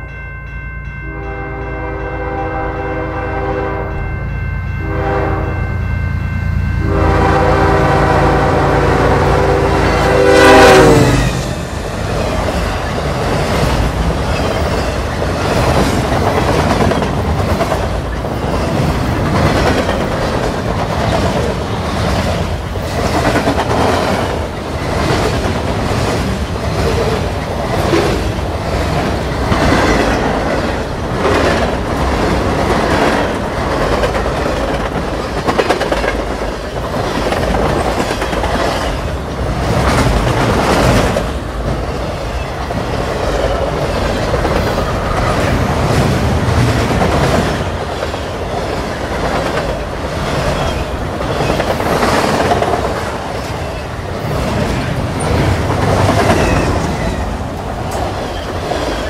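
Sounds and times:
locomotive horn blasts: 1.1 - 4.1, 4.8 - 5.7, 6.8 - 11.3
freight cars clacking over rails: 11.4 - 59.0.

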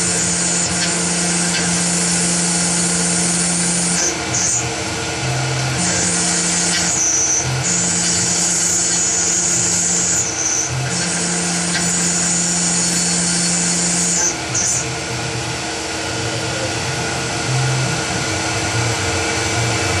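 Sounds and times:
milling cutter cutting metal: 0.0 - 18.8
milling machine spindle running: 0.0 - 20.0.

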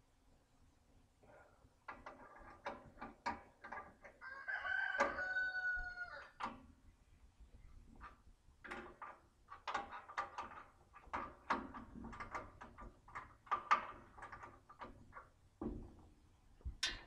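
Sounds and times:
metallic clanks and knocks: 1.9 - 4.2, 8.0 - 17.0.

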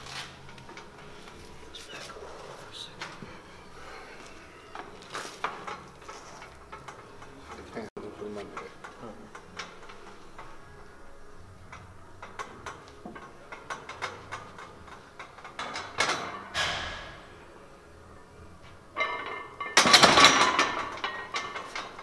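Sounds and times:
barbell racked with metallic clatter: 11.7 - 17.4, 18.9 - 22.0
barbell plates clinking: 18.9 - 22.0.

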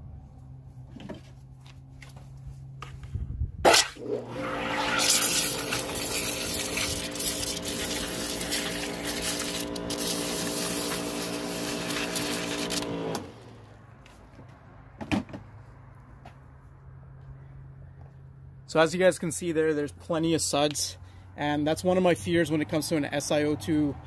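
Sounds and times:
pressure washer spraying water: 4.4 - 13.5.

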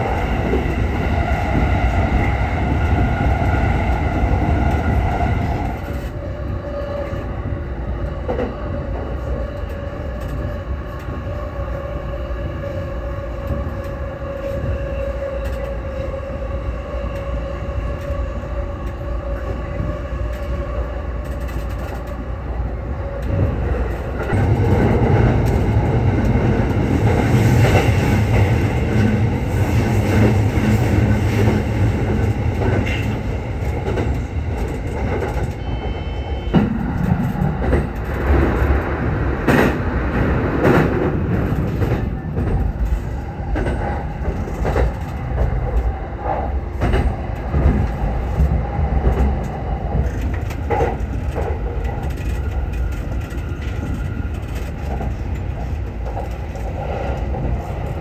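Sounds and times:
electric train running with whine: 0.0 - 39.7
wheels rumbling on rail: 0.0 - 58.0.

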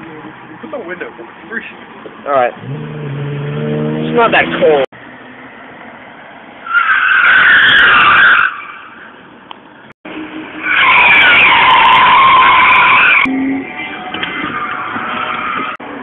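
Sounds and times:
car tyres squealing: 6.6 - 9.4, 10.1 - 16.0.

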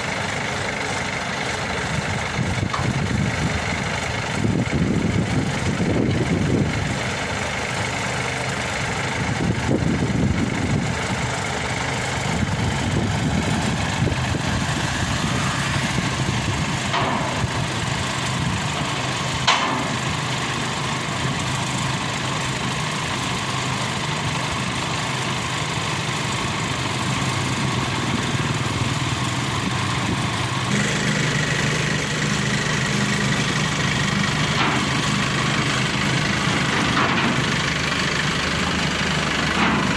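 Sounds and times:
large engine idling: 0.0 - 39.9
clank of steel ramps: 16.9 - 17.5, 19.4 - 20.1, 34.5 - 35.1, 36.8 - 37.6, 39.5 - 39.9.

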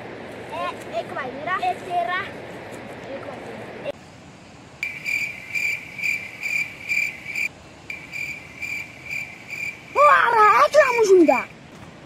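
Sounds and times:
cricket chirping: 4.8 - 11.5.

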